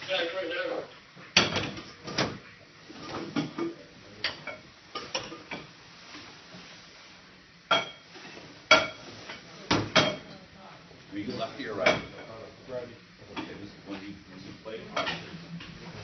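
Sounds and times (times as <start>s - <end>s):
dishes and metal utensils clinking: 2.9s - 5.7s, 7.7s - 10.4s, 14.9s - 16.0s.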